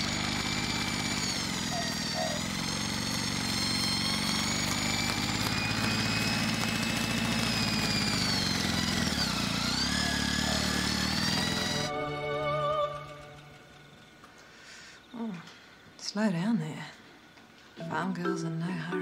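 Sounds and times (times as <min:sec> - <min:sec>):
engine running with high whine: 0:00.0 - 0:14.5.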